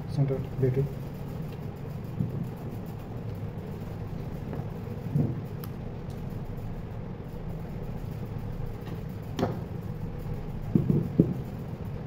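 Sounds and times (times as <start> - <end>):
steady low hum: 0.0 - 12.0
motor knocking on wooden bench: 9.4 - 9.6, 10.7 - 11.4.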